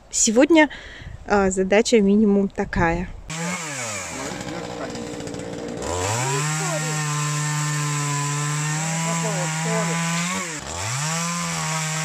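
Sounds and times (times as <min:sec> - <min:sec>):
chainsaw engine revving: 0:03.3 - 0:12.0.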